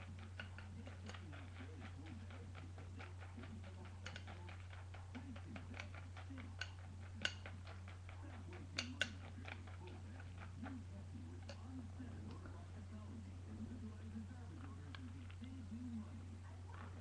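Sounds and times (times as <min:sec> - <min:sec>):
metal spoon clinking against bowl: 0:05.6 - 0:07.9.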